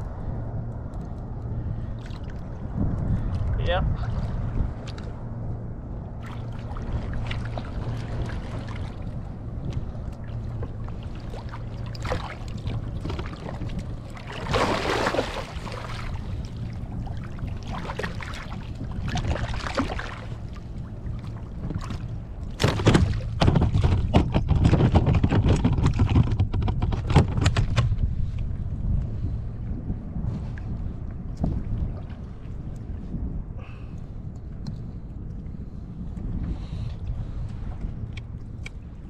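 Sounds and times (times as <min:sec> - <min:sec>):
wind buffeting microphone: 0:00.0 - 0:39.0
water sloshing around kayak: 0:01.6 - 0:29.4
water splashes: 0:06.2 - 0:24.0.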